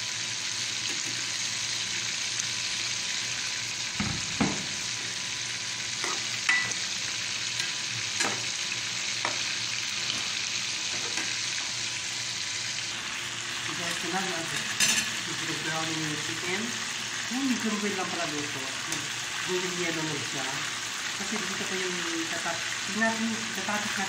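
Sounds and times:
food sizzling in hot oil: 0.0 - 24.0.

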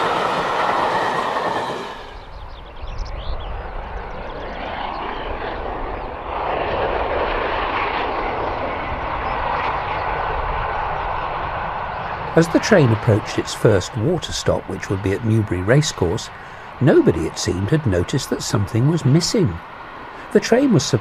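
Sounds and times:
train rumble and roar: 0.0 - 21.0.

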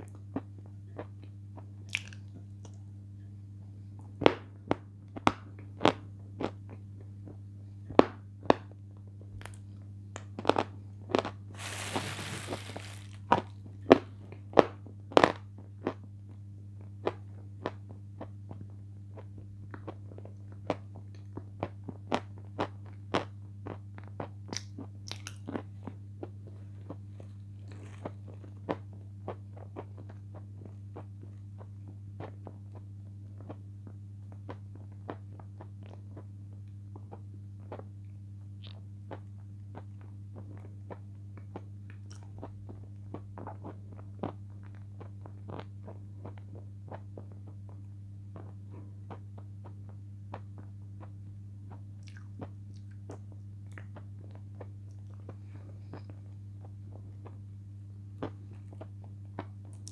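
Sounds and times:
wet lip and tongue smacks: 1.9 - 2.8, 24.5 - 25.6, 52.0 - 54.0
steady low hum: 9.0 - 59.9
brief rustling hiss: 11.6 - 13.2.

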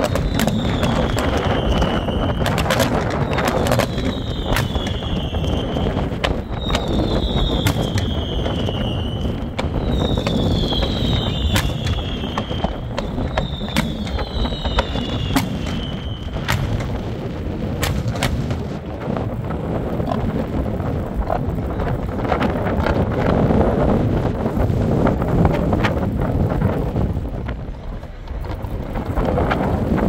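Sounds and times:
falling firework whistles: 0.0 - 17.1
firework bangs: 0.0 - 19.5
wind rumble on microphone: 0.0 - 30.0.

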